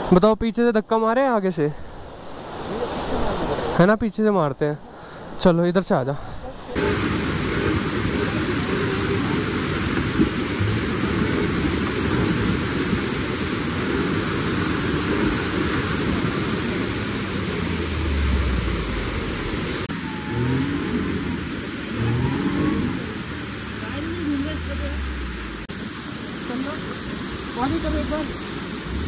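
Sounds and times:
loud steady rushing noise: 0:06.5 - 0:29.0
car engine revving: 0:06.8 - 0:12.5, 0:15.1 - 0:25.7.

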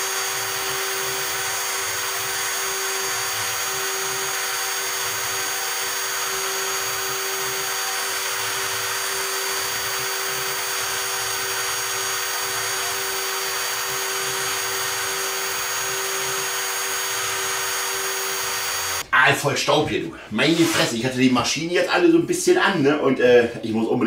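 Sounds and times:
router spindle high whine: 0:00.0 - 0:19.0.

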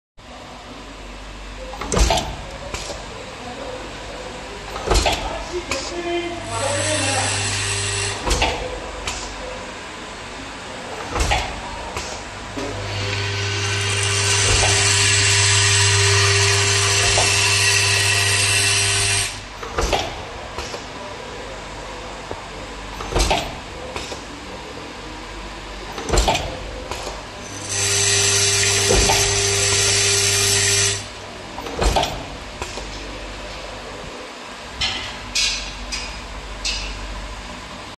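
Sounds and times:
machine motor humming and hissing: 0:04.6 - 0:10.2, 0:10.9 - 0:21.2, 0:25.5 - 0:34.4.

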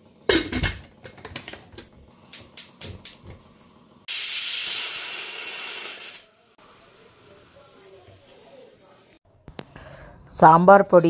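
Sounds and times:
steam venting hiss: 0:04.1 - 0:09.2.

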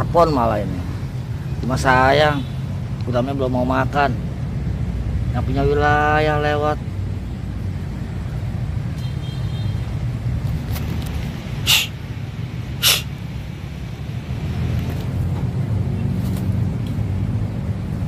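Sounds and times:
distant city traffic rumble: 0:00.0 - 0:18.0
short sharp hissing: 0:11.6 - 0:12.1, 0:12.7 - 0:13.2.

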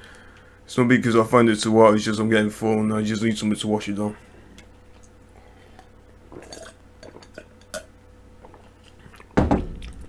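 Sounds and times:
gulping milk: 0:05.7 - 0:09.4.

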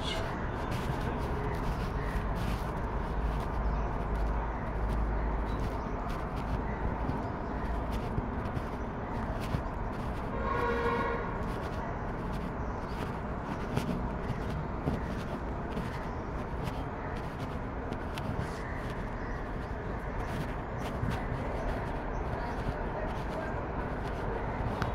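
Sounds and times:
wind rumbling on microphone: 0:00.0 - 0:24.9
horn toot: 0:10.3 - 0:11.4.

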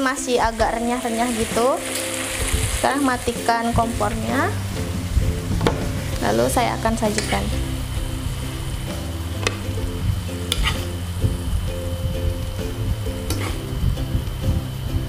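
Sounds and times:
light background music: 0:00.0 - 0:15.0
metal spatula scraping wok: 0:05.9 - 0:07.8, 0:10.3 - 0:11.0, 0:13.1 - 0:13.7.

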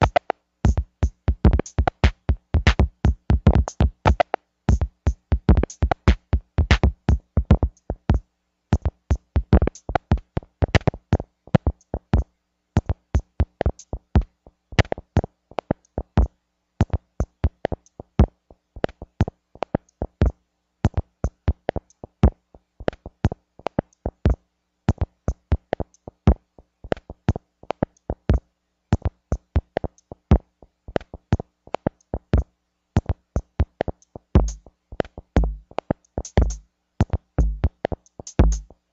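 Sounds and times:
stuttering electronic percussive music: 0:00.0 - 0:08.2, 0:33.6 - 0:38.8.

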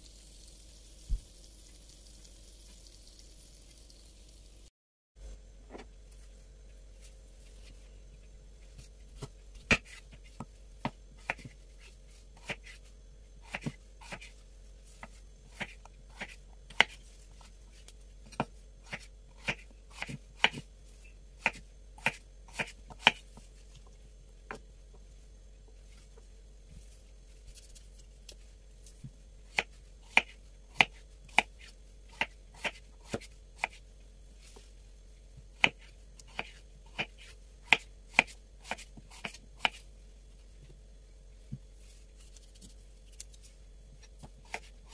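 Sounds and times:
knife chopping on cutting board: 0:15.0 - 0:17.0, 0:18.3 - 0:20.6, 0:21.4 - 0:23.2, 0:29.5 - 0:33.8, 0:35.6 - 0:39.8.

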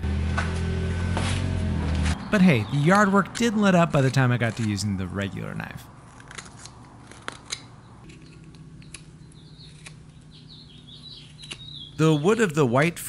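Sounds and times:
knife scraping wood: 0:03.3 - 0:05.3, 0:06.0 - 0:10.3.

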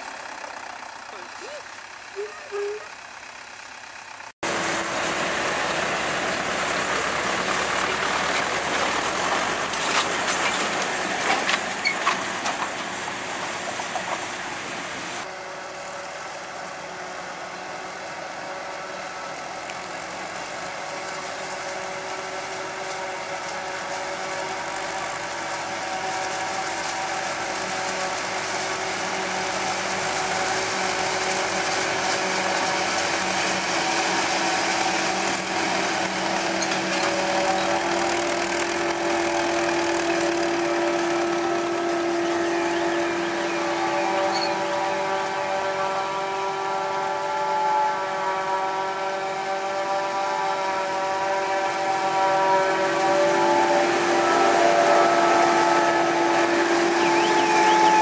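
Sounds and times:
tractor engine running: 0:00.0 - 0:58.0
forage harvester chopping: 0:04.4 - 0:14.5, 0:19.7 - 0:43.0.

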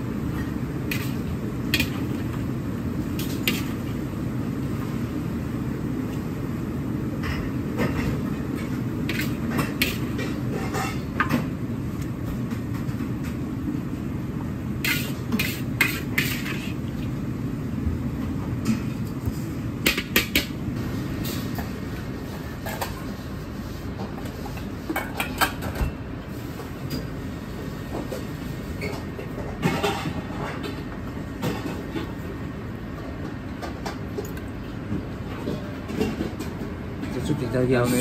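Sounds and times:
kitchen equipment rumble: 0:00.0 - 0:04.3, 0:07.0 - 0:13.6, 0:14.4 - 0:17.3, 0:27.9 - 0:38.0.

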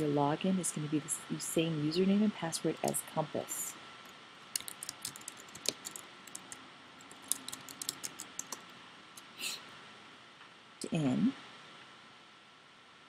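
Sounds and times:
keyboard typing: 0:04.5 - 0:08.7.

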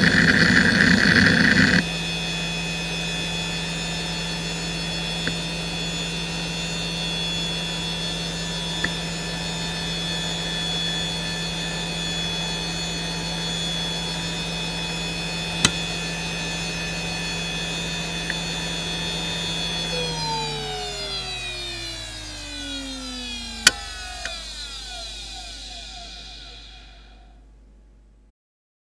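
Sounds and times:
hard drive hum and whine: 0:00.0 - 0:28.3.

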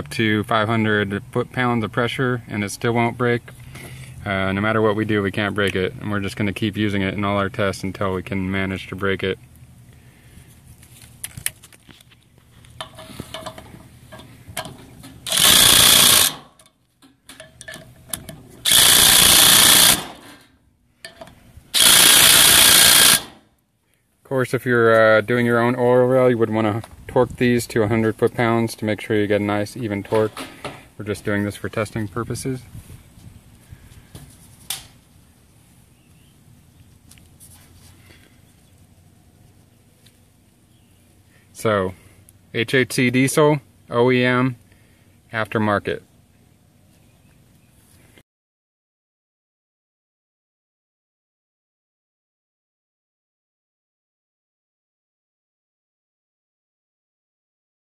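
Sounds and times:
impact driver hammering: 0:14.6 - 0:16.6, 0:18.6 - 0:20.4, 0:21.8 - 0:23.4.

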